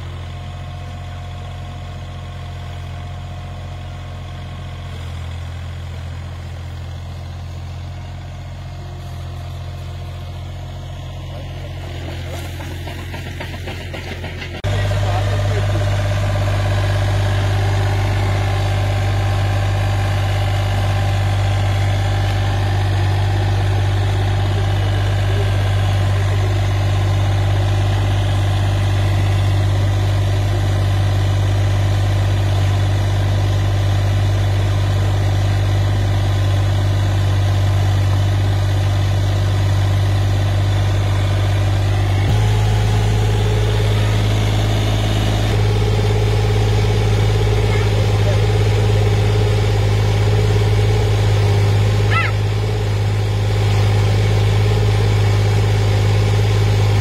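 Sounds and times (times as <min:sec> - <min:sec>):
engine running steadily: 0:00.0 - 0:57.0
auger drilling into soil: 0:11.2 - 0:16.9.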